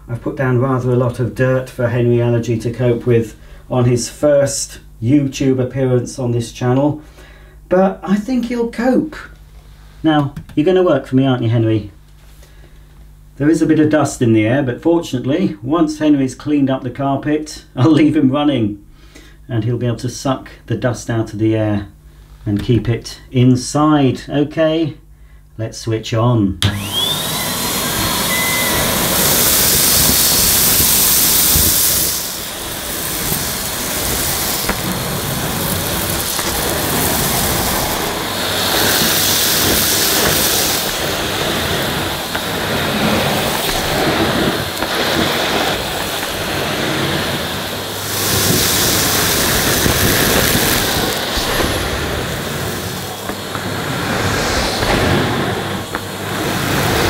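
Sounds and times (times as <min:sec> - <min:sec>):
vacuum cleaner motor whining: 0:26.6 - 0:57.0
vacuum nozzle on carpet: 0:26.6 - 0:57.0.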